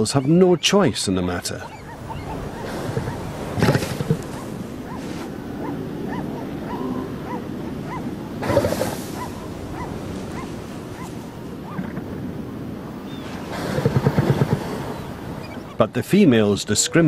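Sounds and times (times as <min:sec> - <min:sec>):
elephant seals yelping: 0:00.0 - 0:15.8
rough elephant seal call: 0:01.6 - 0:12.0.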